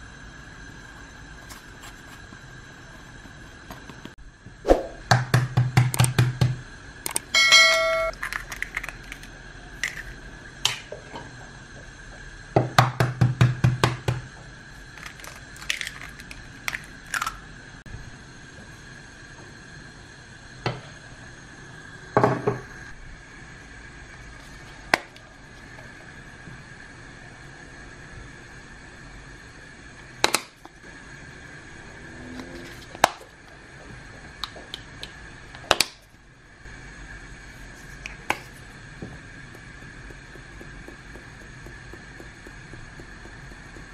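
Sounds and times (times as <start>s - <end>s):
faint steady hum: 0.0s - 43.9s
eggshells cracking: 8.1s - 10.1s, 15.0s - 17.4s.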